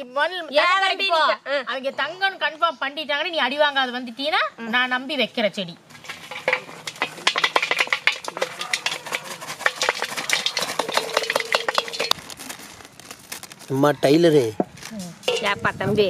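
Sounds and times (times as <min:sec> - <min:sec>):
stirring or scraping: 0:05.9 - 0:13.7, 0:14.6 - 0:15.8
packets being handled: 0:05.9 - 0:15.6.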